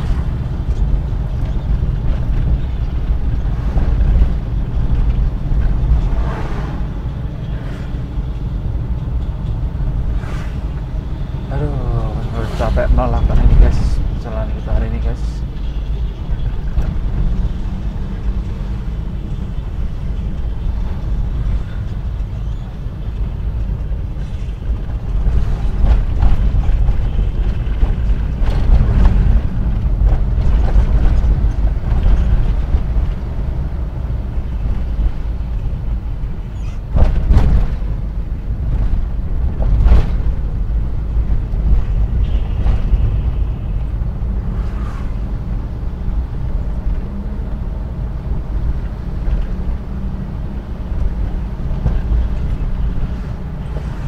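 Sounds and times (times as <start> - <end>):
vehicle engine and road rumble: 0.0 - 54.0
knocks and rattles: 12.7 - 44.3.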